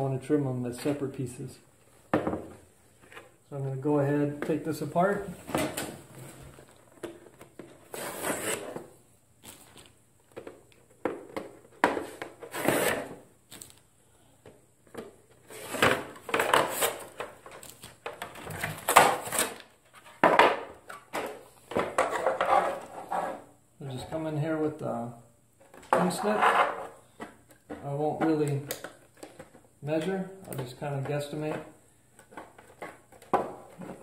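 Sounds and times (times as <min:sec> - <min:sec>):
plastic pieces scraping and knocking: 0:14.9 - 0:23.4, 0:25.6 - 0:34.0.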